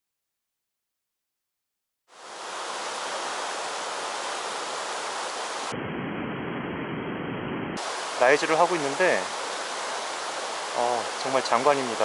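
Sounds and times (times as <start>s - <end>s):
stream rushing over rocks: 2.2s - 5.7s, 7.8s - 12.0s.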